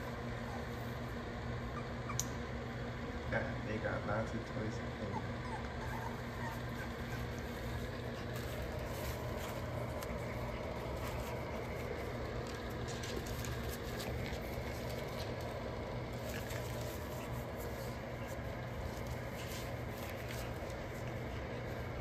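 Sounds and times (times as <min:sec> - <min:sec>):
low background hum: 0:00.0 - 0:22.0
puppy paws tapping on pads: 0:07.1 - 0:21.8.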